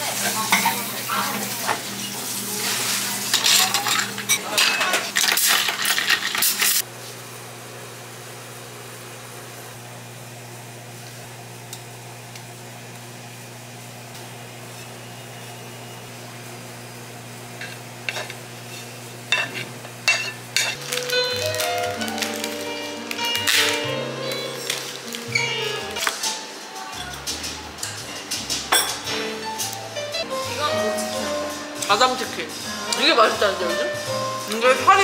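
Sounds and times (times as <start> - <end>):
glassware clinking: 19.3 - 21.0, 28.7 - 29.0
packaging clicks and rustles: 20.8 - 23.9.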